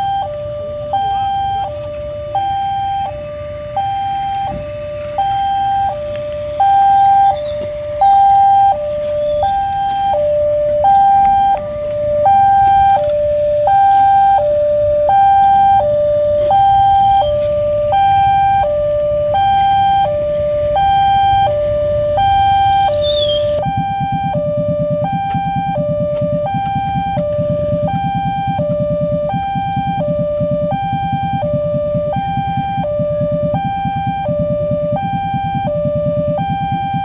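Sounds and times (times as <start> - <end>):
level crossing two-tone alarm: 0.0 - 37.0
low pulsing rumble: 0.0 - 37.0.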